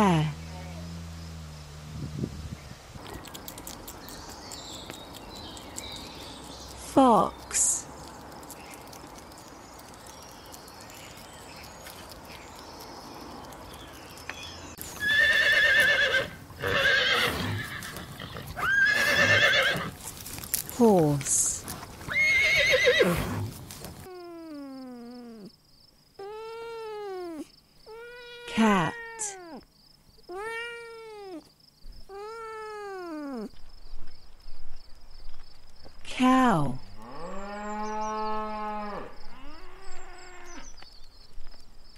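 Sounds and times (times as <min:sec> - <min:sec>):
low bumps: 0:00.0 - 0:05.0
horse whinnying: 0:15.0 - 0:20.0, 0:22.0 - 0:23.5
cat meowing: 0:26.2 - 0:29.6, 0:30.3 - 0:31.5, 0:32.1 - 0:33.5.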